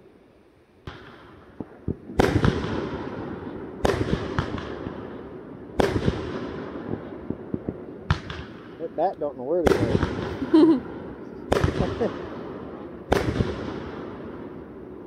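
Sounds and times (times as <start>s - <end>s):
crackling echo: 0.0s - 15.0s
fireworks banging: 0.8s - 15.0s.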